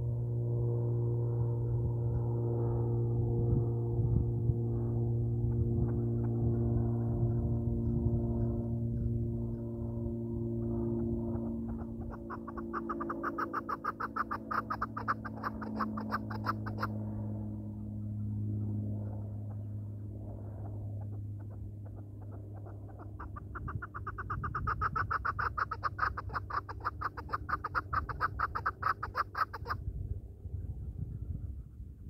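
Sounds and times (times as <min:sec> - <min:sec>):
partridge calling: 0:11.3 - 0:16.9, 0:21.0 - 0:29.8.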